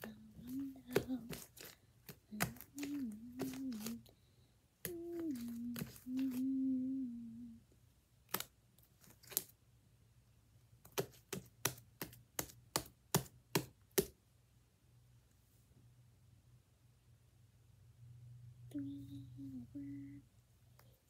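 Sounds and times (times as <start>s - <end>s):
person humming: 0.0s - 1.5s, 2.3s - 4.1s, 4.8s - 7.6s, 18.7s - 20.3s.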